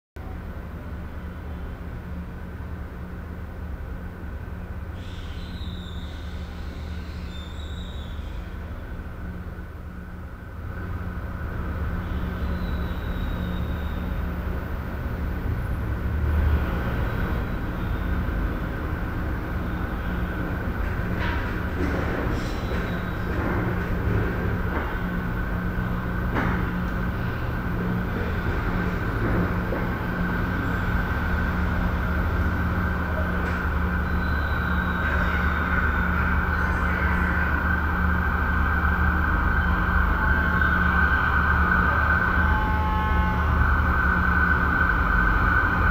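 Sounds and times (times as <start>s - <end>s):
low hum and rumble: 0.2s - 45.9s.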